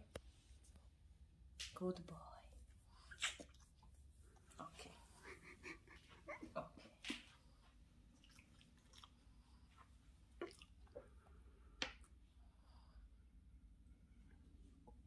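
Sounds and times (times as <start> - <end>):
faint soft clicks and smacks: 0.0 - 0.9, 7.0 - 12.3.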